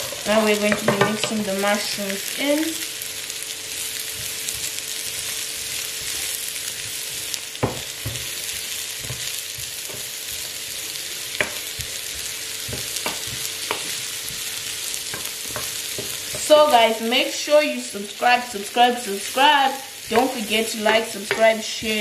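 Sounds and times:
mushrooms sizzling in a skillet: 0:00.0 - 0:22.0
wooden spoon knocking on pan: 0:00.6 - 0:01.4, 0:07.6 - 0:08.4, 0:11.4 - 0:12.0, 0:12.6 - 0:14.4, 0:15.1 - 0:16.5, 0:20.1 - 0:22.0.

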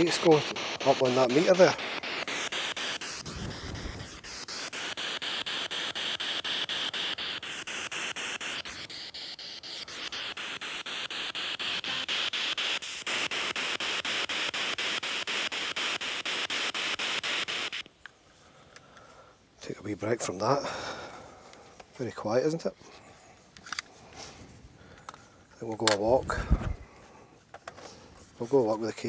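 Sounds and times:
radio static sweeping: 0:00.0 - 0:17.9.

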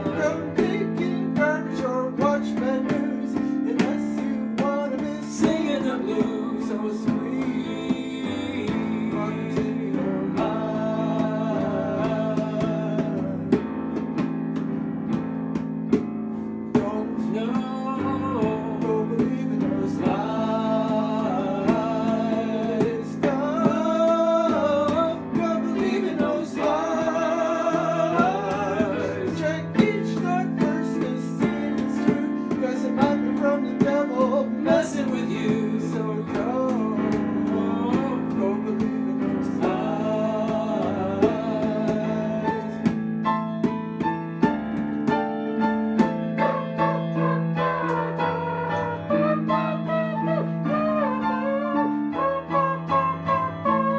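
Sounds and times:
digital piano: 0:00.0 - 0:53.9.

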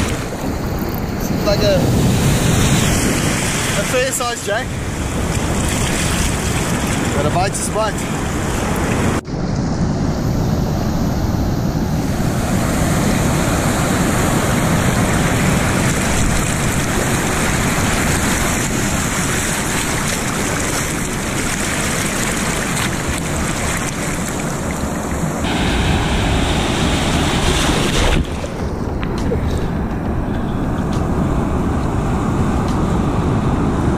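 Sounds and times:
ocean surf breaking: 0:00.0 - 0:33.9
wind buffeting microphone: 0:00.0 - 0:33.9.

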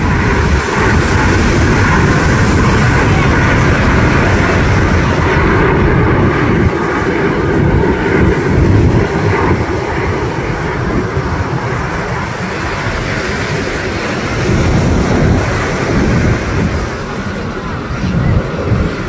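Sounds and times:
jet engines rumbling overhead: 0:00.0 - 0:19.0.

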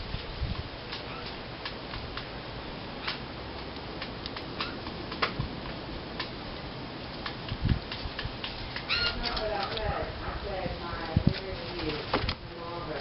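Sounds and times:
outdoor background hiss: 0:00.0 - 0:13.0.

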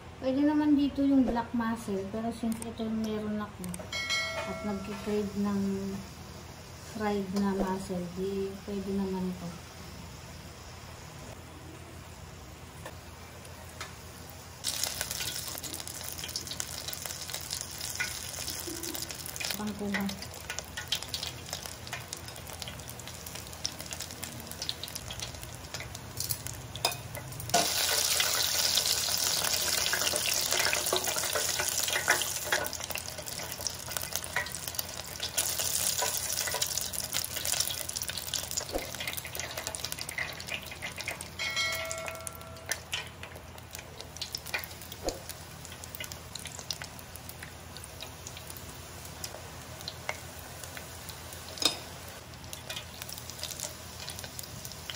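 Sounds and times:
food deep-frying in hot oil: 0:01.7 - 0:54.9.

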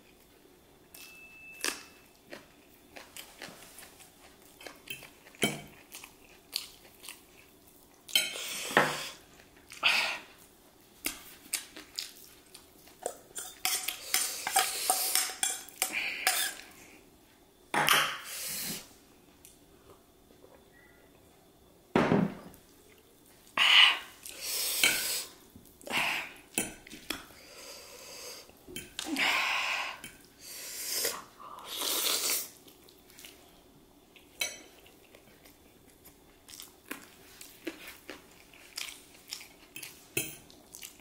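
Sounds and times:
chewing: 0:01.6 - 0:08.2, 0:34.2 - 0:41.0.

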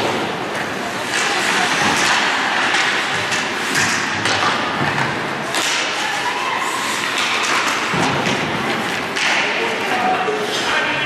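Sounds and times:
skate blades scraping ice: 0:00.2 - 0:11.0
stick and puck knocks: 0:01.1 - 0:06.0, 0:07.0 - 0:09.6.

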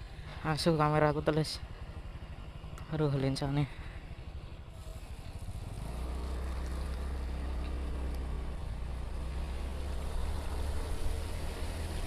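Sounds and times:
motorcycle engine: 0:04.3 - 0:12.0.

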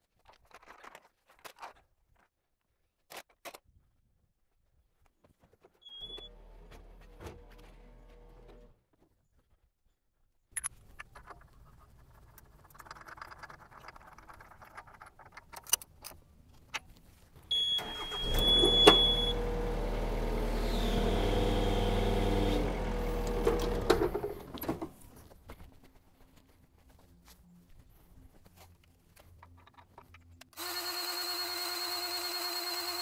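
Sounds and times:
short high beep: 0:17.5 - 0:19.4
machine motor humming: 0:18.2 - 0:24.4.

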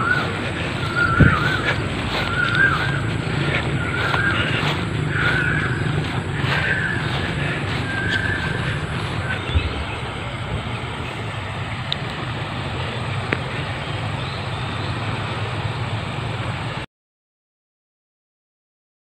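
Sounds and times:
bird warbling call: 0:00.0 - 0:15.5
road traffic rumble: 0:00.0 - 0:16.9.

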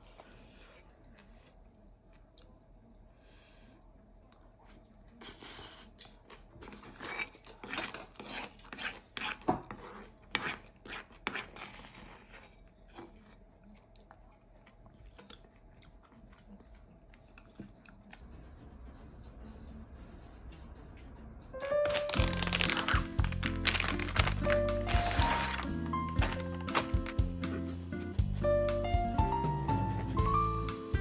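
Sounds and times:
wooden spoon scraping a bowl: 0:06.6 - 0:13.4.

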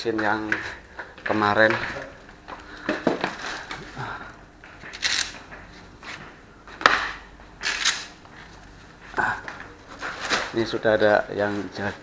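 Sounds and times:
plastic bag crinkling: 0:09.5 - 0:11.9.

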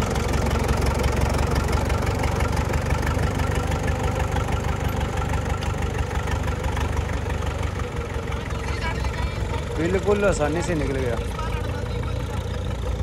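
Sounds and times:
tractor diesel engine running: 0:00.0 - 0:13.0
tractor driving through water: 0:00.0 - 0:13.0.

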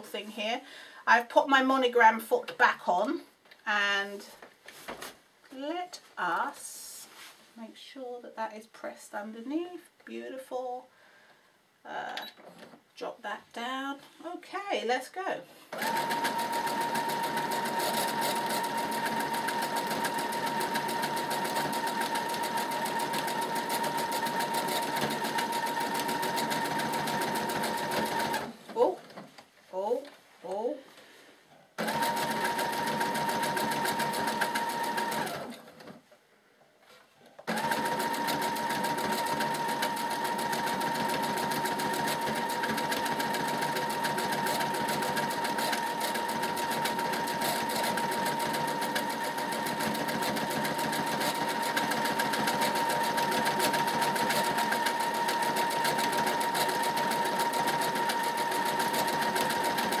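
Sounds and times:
sewing machine stitching: 0:15.7 - 0:28.6, 0:31.8 - 0:36.0, 0:37.5 - 1:00.0.

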